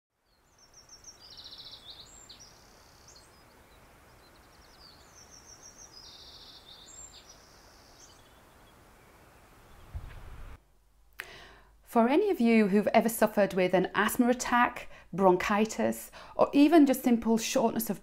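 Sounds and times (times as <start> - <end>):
songbird trills: 0.2 - 10.5
faint steady hiss: 0.2 - 18.0.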